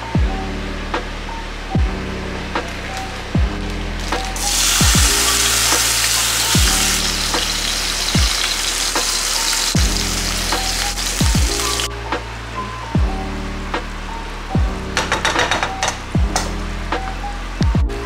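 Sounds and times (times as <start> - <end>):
music with deep bass beat: 0.0 - 18.0
oil sizzling in a pan: 4.0 - 11.9.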